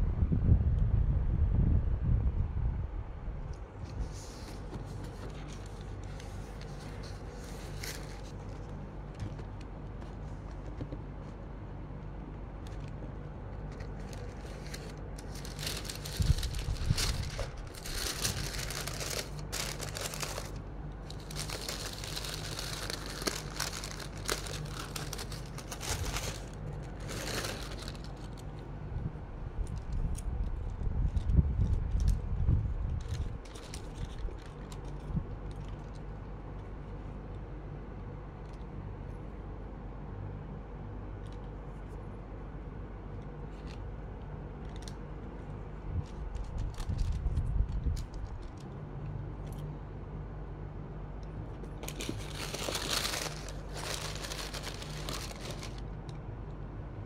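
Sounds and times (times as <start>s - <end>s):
steady low hum: 0.0s - 57.0s
tissue paper rustling: 3.9s - 8.8s, 13.7s - 28.5s, 51.8s - 55.8s.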